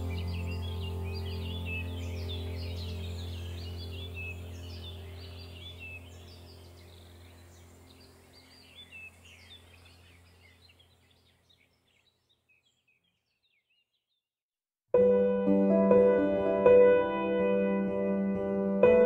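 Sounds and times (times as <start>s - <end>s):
low steady drone: 0.0s - 10.4s
birds chirping: 0.0s - 14.2s.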